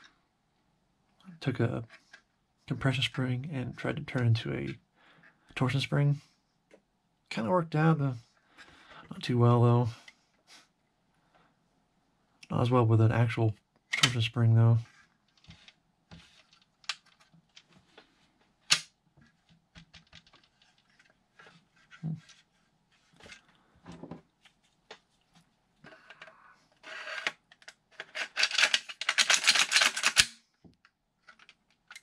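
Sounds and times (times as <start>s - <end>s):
plastic scraping and rattling: 19.2s - 24.2s, 25.9s - 30.3s.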